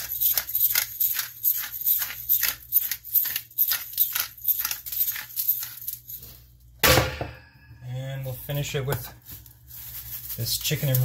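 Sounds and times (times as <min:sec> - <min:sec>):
pepper dispenser strokes: 0:00.0 - 0:05.9.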